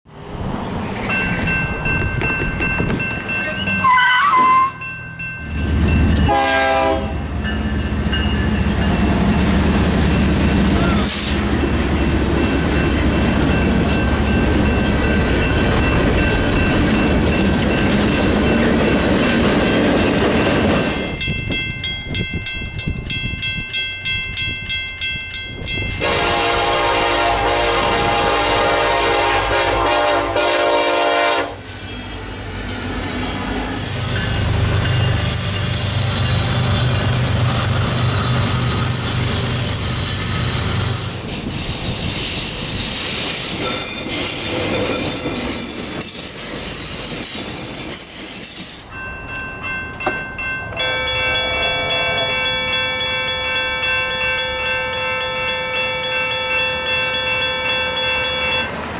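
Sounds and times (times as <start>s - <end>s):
freight train rumbling: 0.1s - 58.9s
crossing warning bells ringing: 0.3s - 41.3s, 42.4s - 58.9s
locomotive horn: 3.8s - 4.8s, 6.2s - 7.3s, 26.0s - 31.6s.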